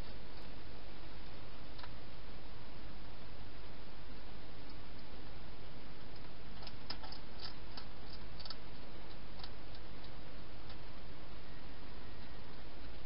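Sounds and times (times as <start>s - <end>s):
hedgehog chewing clicks: 6.1s - 10.8s.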